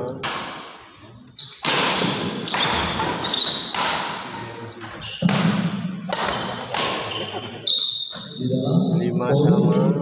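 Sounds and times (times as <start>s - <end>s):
shoe squeaks: 1.0s - 5.5s, 6.2s - 8.6s
racket striking shuttlecock: 1.6s - 4.3s, 5.2s - 7.1s.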